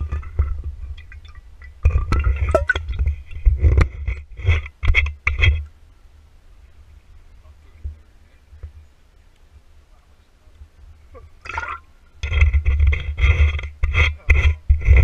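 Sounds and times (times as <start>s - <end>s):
bottle knocking and rubbing: 1.9s - 5.6s.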